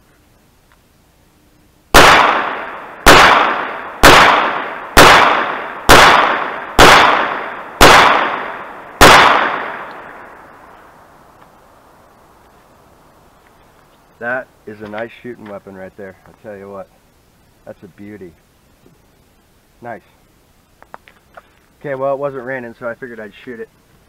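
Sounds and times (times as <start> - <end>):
pistol shots: 1.9 - 10.4.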